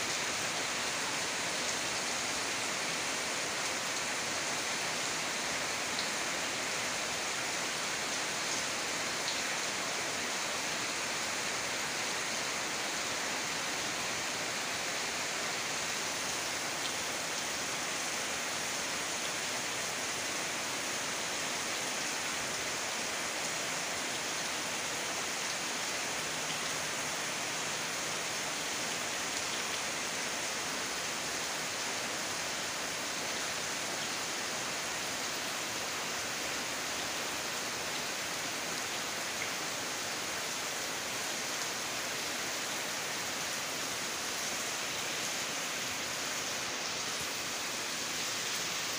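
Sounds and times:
rain falling on leaves: 0:00.0 - 0:48.9.

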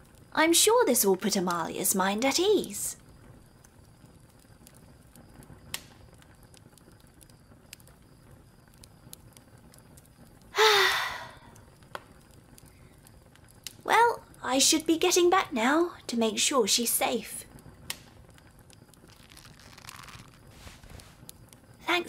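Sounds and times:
faint clicks and crackles: 0:00.0 - 0:22.0
woman sighing: 0:10.6 - 0:11.5.

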